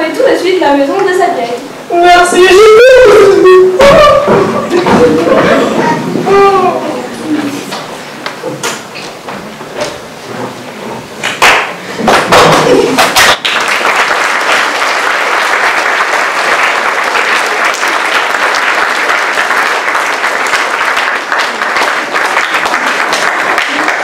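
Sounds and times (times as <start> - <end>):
audience applauding: 11.4 - 24.0.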